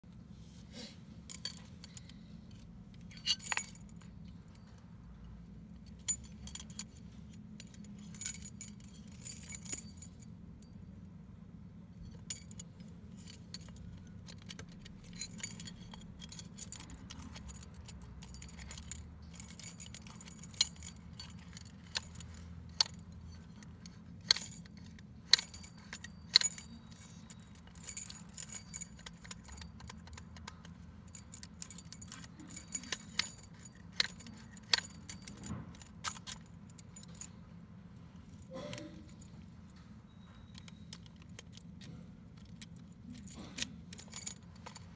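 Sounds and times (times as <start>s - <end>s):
keys jangling against metal lock: 1.3s - 4.8s, 5.7s - 10.8s, 12.0s - 44.9s.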